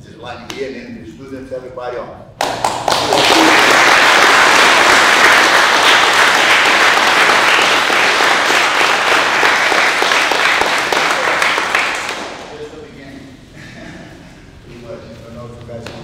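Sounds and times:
crowd applauding: 2.4 - 12.7.

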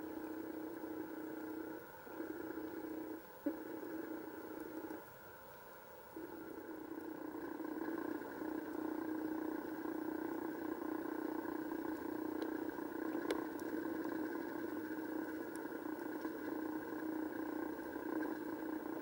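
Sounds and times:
underwater mechanical hum: 0.0 - 19.0
faint sharp clicks: 11.9 - 13.8.

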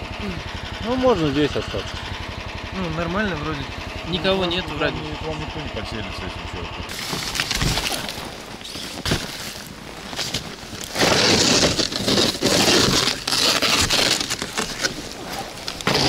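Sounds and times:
crunching scraping noise: 6.9 - 16.0.

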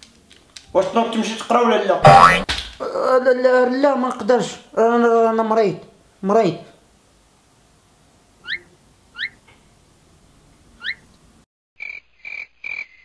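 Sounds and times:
frog-like croaks: 11.8 - 13.0.

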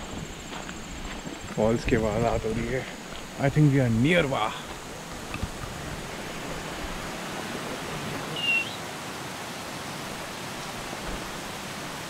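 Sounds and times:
waterfall rushing: 2.8 - 12.0
high chirp: 8.4 - 8.8.

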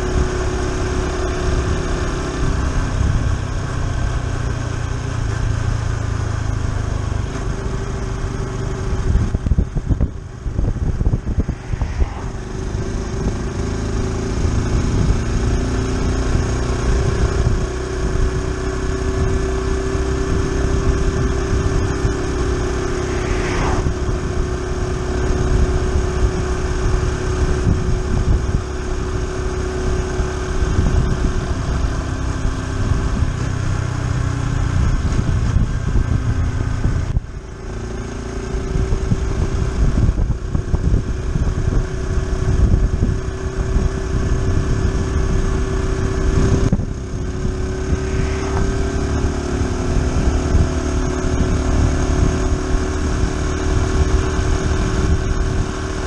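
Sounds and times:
motorcycle engine running: 0.0 - 56.0
wind rumble on microphone: 0.0 - 56.0
car passing: 10.2 - 15.2, 21.7 - 25.1, 47.1 - 50.4.

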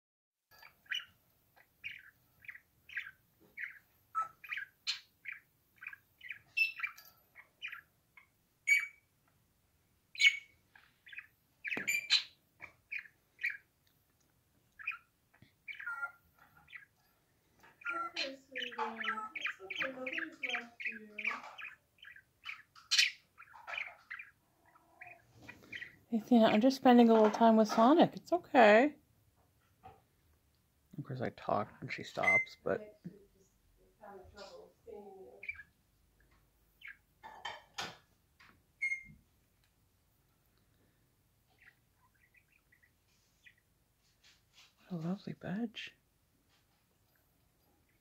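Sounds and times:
budgerigar chirping and warbling: 0.5 - 9.1, 10.1 - 13.7, 14.7 - 17.0, 17.6 - 26.6, 32.1 - 32.6, 35.3 - 35.8, 36.8 - 37.9, 38.8 - 39.2, 41.5 - 43.6.

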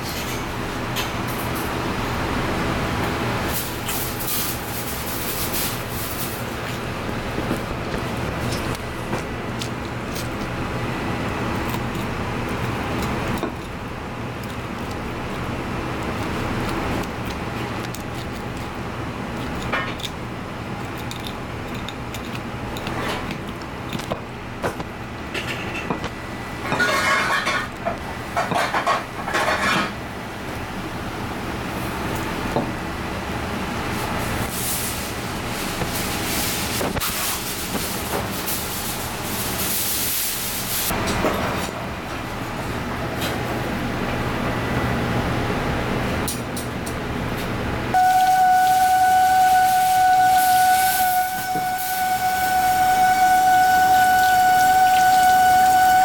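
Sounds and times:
low background hum: 0.0 - 56.0
knife scraping and clicking on bone: 11.6 - 13.8, 16.0 - 18.7, 19.3 - 20.2, 20.8 - 24.2.

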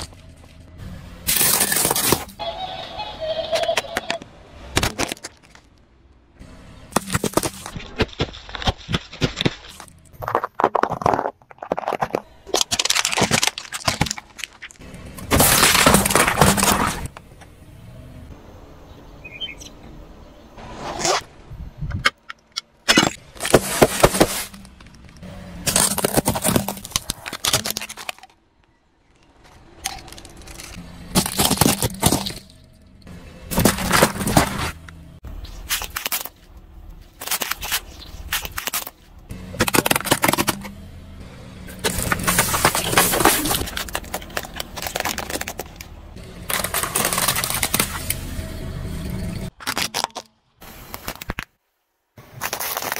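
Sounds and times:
tyre crushing cans and plastic: 1.2 - 2.4, 3.6 - 5.8, 6.9 - 17.2, 22.1 - 28.4, 29.1 - 32.7, 33.4 - 40.8, 41.7 - 48.3, 49.1 - 51.5, 52.2 - 52.9.

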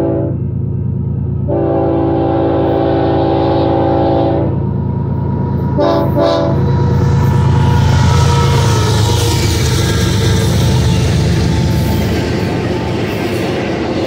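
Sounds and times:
locomotive air horn: 0.0 - 0.4, 1.5 - 4.6, 5.8 - 6.8
train rumbling: 0.0 - 14.0.

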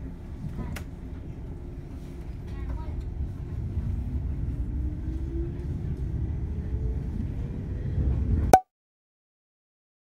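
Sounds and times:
train running gear rumble: 0.0 - 8.5.

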